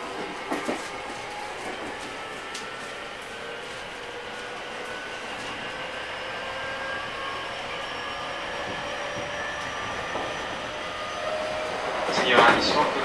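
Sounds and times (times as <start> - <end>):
train rail and running noise: 0.0 - 13.0
motor and inverter whine: 0.1 - 13.0.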